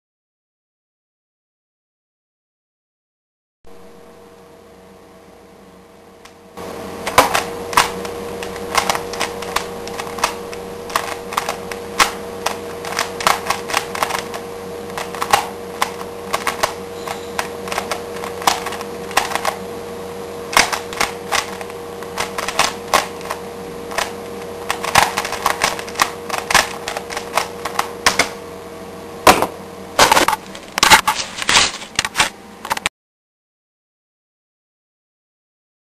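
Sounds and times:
faint steady hum: 3.7 - 32.9
puzzle cube plastic clicking: 7.1 - 19.6, 20.5 - 28.3.

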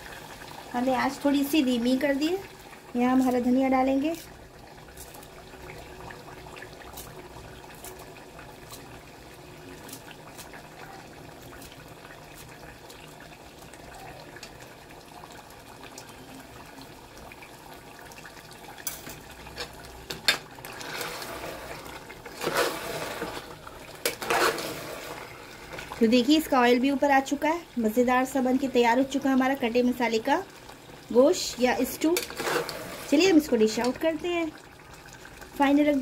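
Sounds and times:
gravy simmering with pops: 0.0 - 36.0
spoon stirring thick gravy: 19.1 - 26.0, 32.2 - 34.0.

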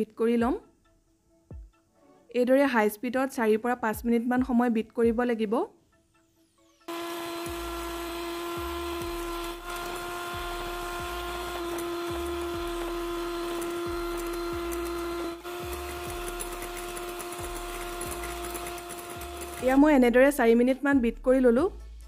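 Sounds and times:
electric hand mixer whining: 6.9 - 20.0.

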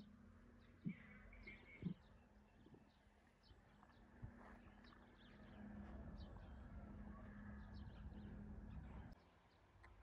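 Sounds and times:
faint bird chirps: 0.0 - 4.0.

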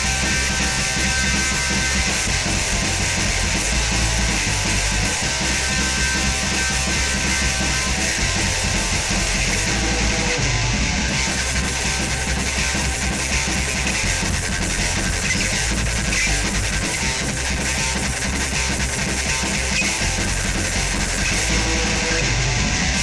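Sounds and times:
electric guitar: 0.0 - 23.0
punk rock band playing: 0.0 - 23.0.

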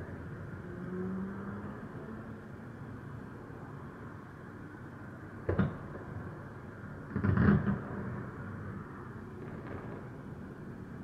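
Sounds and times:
city traffic hum: 0.0 - 11.0
fireworks bangs: 7.1 - 8.2, 9.4 - 10.3.

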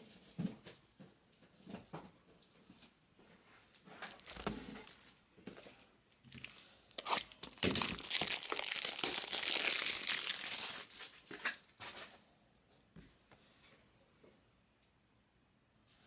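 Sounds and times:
wrapper tearing and crinkling: 4.1 - 5.2, 6.3 - 11.6.

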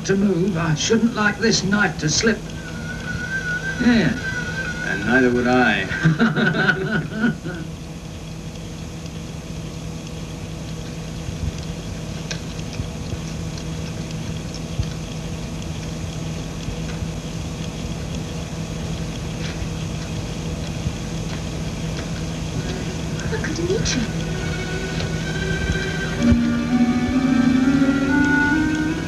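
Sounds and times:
steady low hum: 0.0 - 29.0
even hiss: 0.8 - 7.7.

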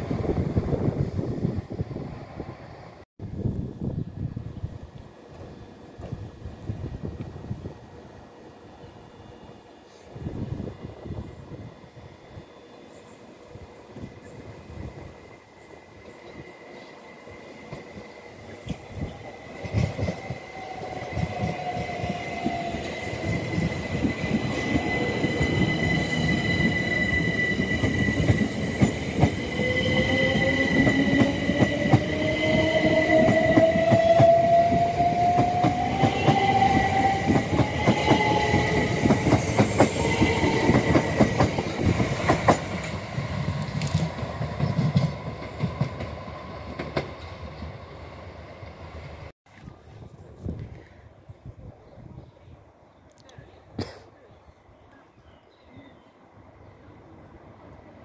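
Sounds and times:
electric train passing: 0.0 - 49.3
high squeal: 20.2 - 39.0.

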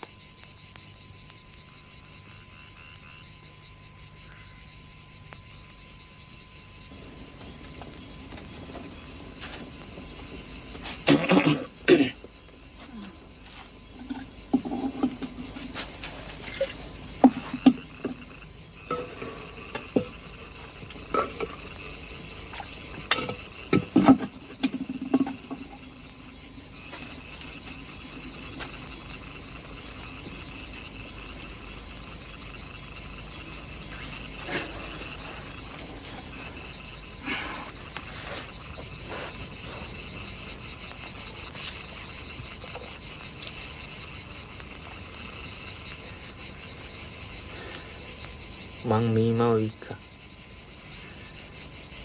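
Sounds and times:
crickets trilling: 0.0 - 52.0
knocks and thumps: 14.0 - 18.3, 18.9 - 21.8, 22.5 - 26.0.

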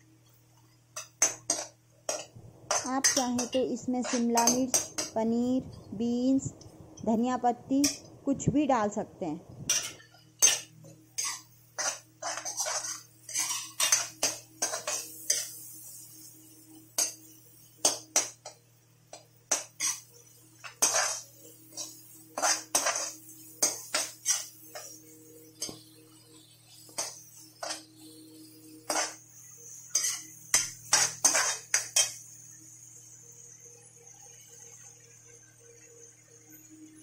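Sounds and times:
metal spoon scraping metal pan: 1.0 - 5.2, 9.7 - 15.6, 19.5 - 25.0, 28.7 - 29.2, 29.8 - 32.2.

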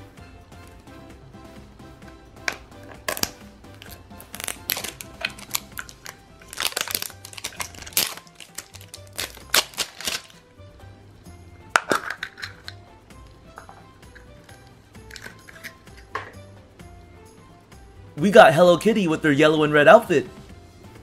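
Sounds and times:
soft background music: 0.0 - 21.0
plastic wrap crinkling and tearing: 3.0 - 10.4.

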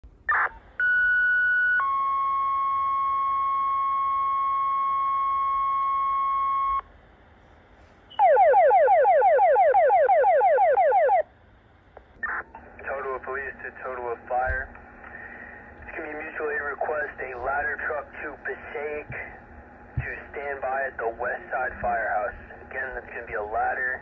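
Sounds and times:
two-tone radio page: 11.8 - 19.4, 20.0 - 24.0.

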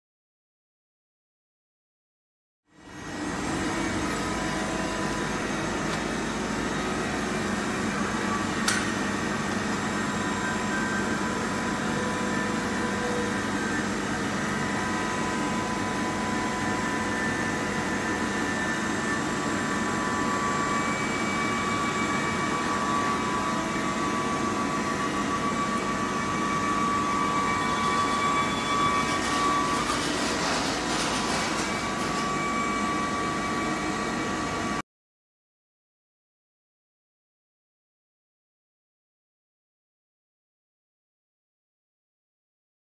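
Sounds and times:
machine whines: 2.8 - 34.8
machinery humming: 2.8 - 34.8.

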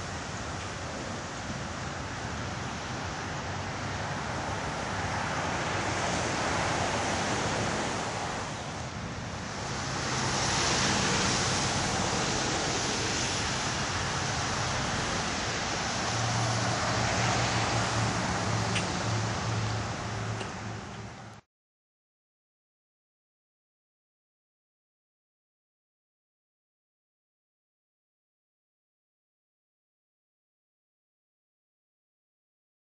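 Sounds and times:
storm wind on microphone: 0.0 - 20.7.

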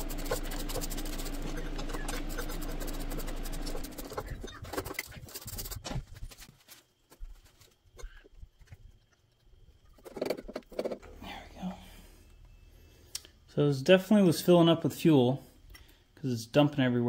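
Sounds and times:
steady hum: 0.0 - 6.5.

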